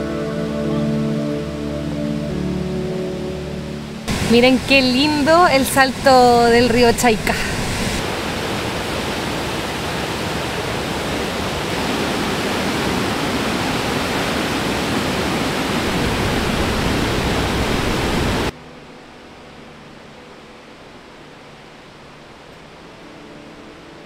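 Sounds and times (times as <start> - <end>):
faint steady hiss: 0.0 - 13.0, 15.1 - 24.0
waterfall pouring over rocks: 4.1 - 18.5.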